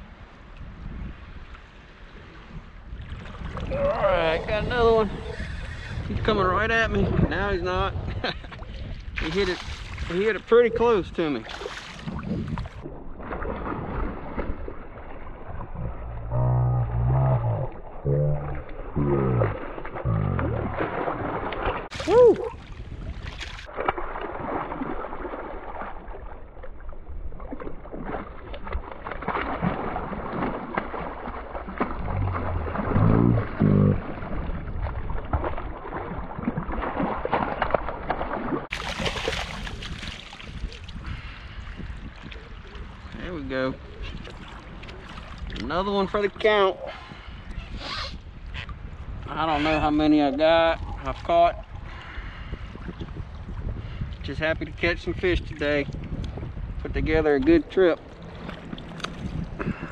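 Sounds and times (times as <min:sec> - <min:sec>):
fish thrashing in water: 0:11.4 - 0:26.8, 0:27.4 - 0:41.1
deep drawn-out pitched sounds: 0:12.2 - 0:22.6, 0:31.8 - 0:35.4.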